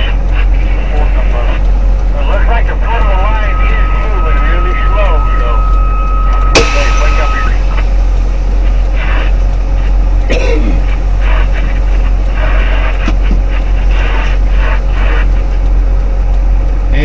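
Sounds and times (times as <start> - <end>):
truck diesel engine idling: 0.0 - 17.0.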